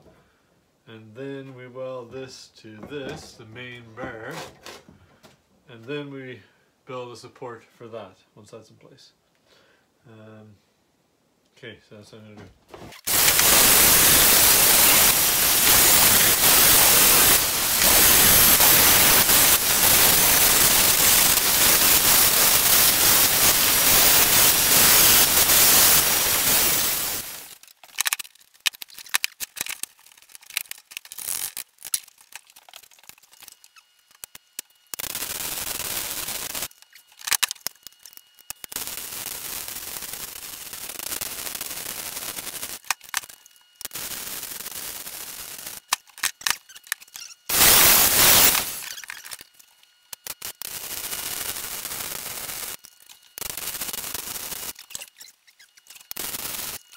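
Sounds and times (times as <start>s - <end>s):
welding arc crackling: 13.0s - 56.9s
angle grinder on steel: 13.1s - 27.6s, 45.2s - 49.4s.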